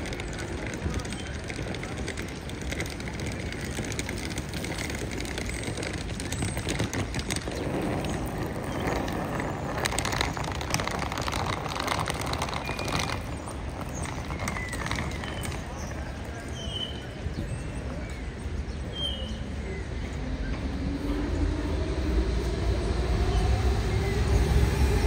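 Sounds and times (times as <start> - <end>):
city traffic noise: 0.0 - 25.0.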